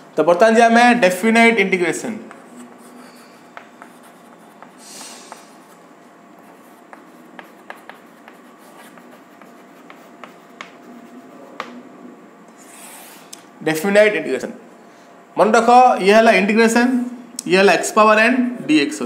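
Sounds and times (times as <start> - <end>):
chalk writing on blackboard: 2.2 - 11.8.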